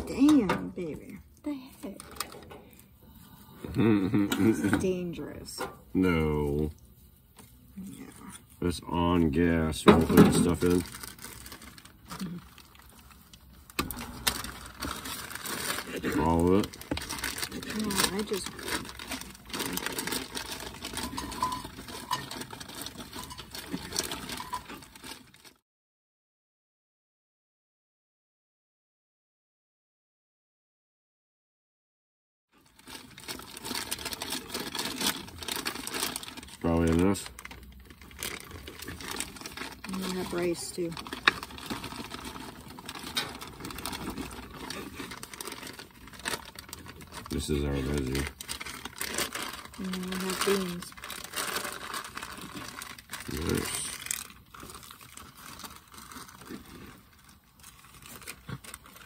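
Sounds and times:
plastic bag crinkling: 0:01.1 - 0:02.9, 0:08.0 - 0:25.6, 0:32.6 - 0:59.0.

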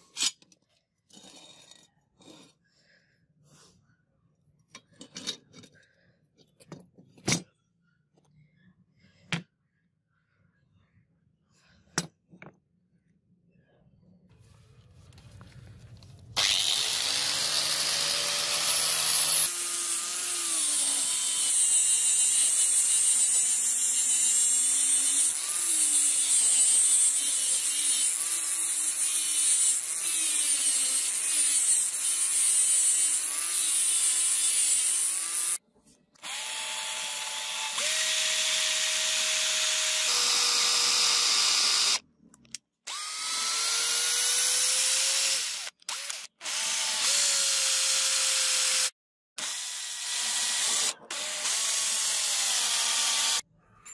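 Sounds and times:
electric drill boring into wood: 0:16.4 - 0:35.6, 0:36.2 - 0:42.0, 0:42.9 - 0:53.4
power sander grinding steel: 0:16.4 - 0:35.6.

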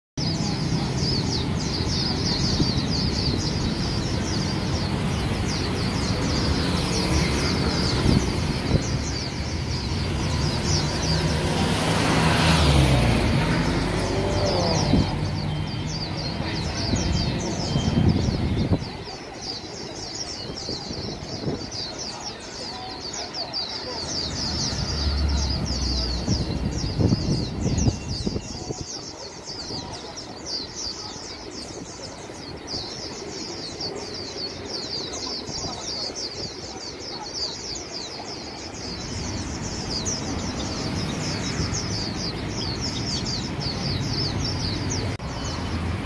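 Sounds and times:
birds twittering: 0:00.2 - 0:46.0
low traffic rumble: 0:00.2 - 0:46.0.

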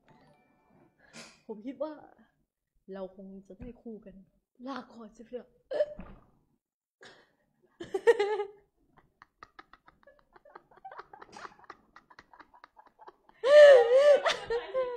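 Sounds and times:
women laughing: 0:07.8 - 0:14.9
woman squealing: 0:13.4 - 0:14.5.

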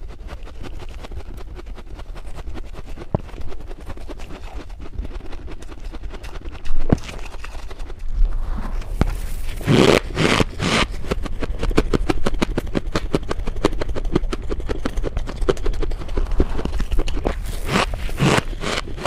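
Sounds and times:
hands crunching frost: 0:00.0 - 0:19.0
scraping swishes: 0:07.1 - 0:11.0.

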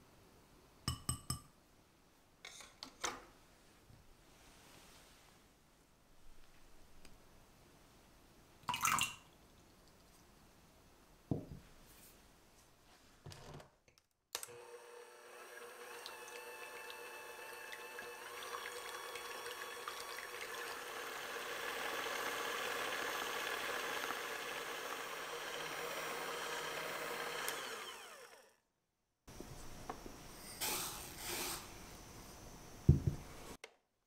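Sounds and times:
liquid splashing into glass bowl: 0:08.7 - 0:09.3
electric hand mixer whipping: 0:14.5 - 0:28.6.

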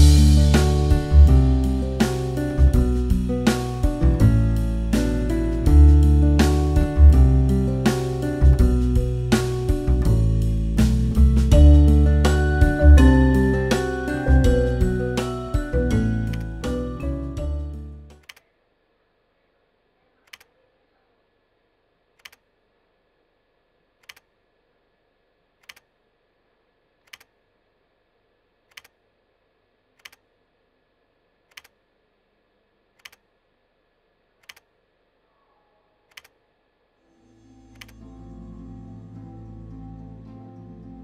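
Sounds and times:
music: 0:00.0 - 0:18.2, 0:37.1 - 0:41.0
computer mouse clicks: 0:18.2 - 0:18.5, 0:20.2 - 0:20.6, 0:22.2 - 0:22.5, 0:24.0 - 0:24.3, 0:25.6 - 0:25.9, 0:27.0 - 0:27.4, 0:28.7 - 0:29.0, 0:30.0 - 0:30.2, 0:31.5 - 0:31.8, 0:33.0 - 0:33.3, 0:34.4 - 0:34.7, 0:36.1 - 0:36.4, 0:37.7 - 0:38.0.

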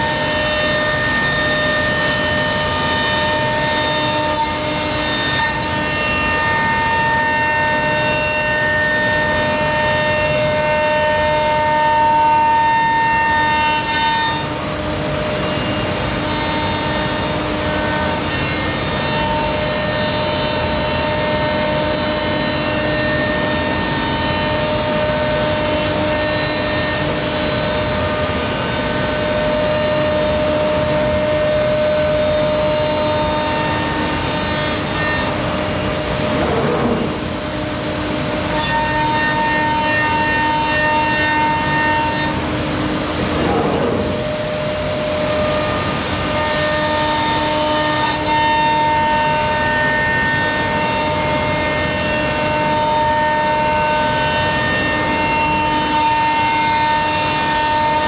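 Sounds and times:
cnc router whine: 0:00.0 - 0:58.0
continuous rushing noise: 0:23.8 - 0:38.6, 0:42.3 - 0:49.5.

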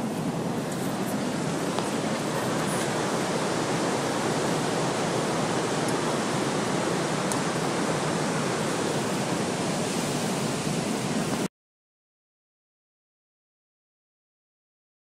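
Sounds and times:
waterfall rushing: 0:00.0 - 0:11.5.

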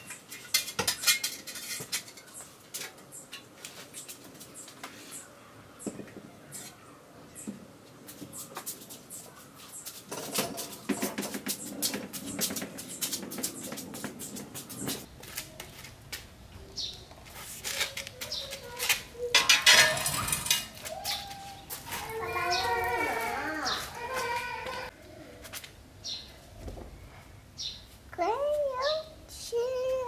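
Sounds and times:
hand truck rattling on concrete: 0:10.1 - 0:15.1, 0:18.8 - 0:21.2.

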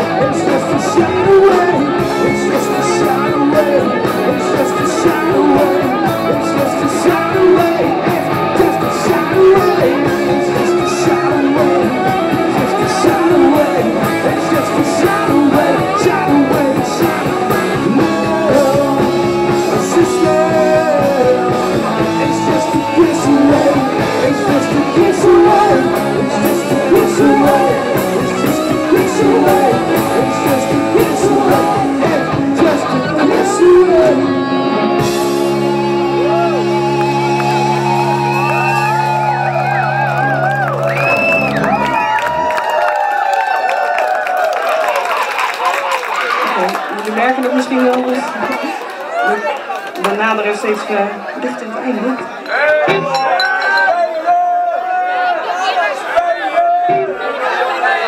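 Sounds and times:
person singing: 0:00.0 - 0:39.6
live rock band playing: 0:00.0 - 0:42.6, 0:52.8 - 0:54.1
electric guitar: 0:00.0 - 0:44.4
drum beat: 0:52.9 - 0:53.9.

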